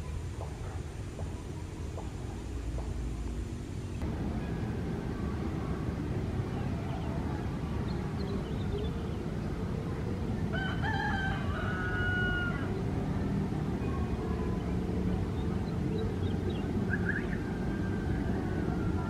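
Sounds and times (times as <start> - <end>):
rooster crowing: 10.5 - 12.8.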